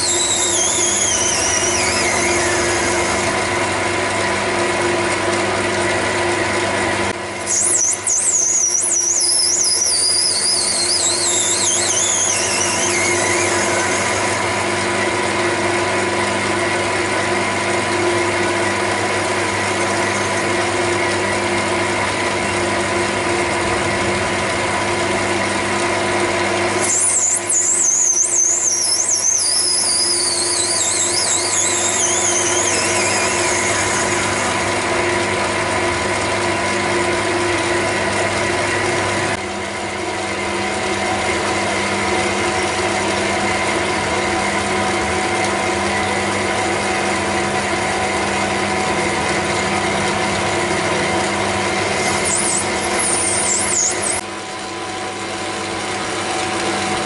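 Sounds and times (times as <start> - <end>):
high squeal falling in pitch: 0.0 - 4.0, 7.4 - 16.2, 18.7 - 21.7, 25.8 - 36.5, 51.8 - 54.2
metal lathe whining: 0.0 - 54.4.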